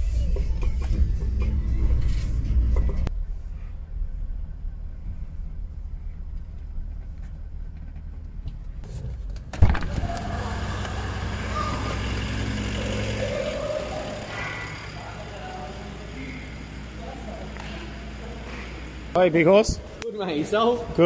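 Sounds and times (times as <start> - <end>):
echoing room noise: 0.0 - 21.0
truck engine running low: 9.6 - 19.2.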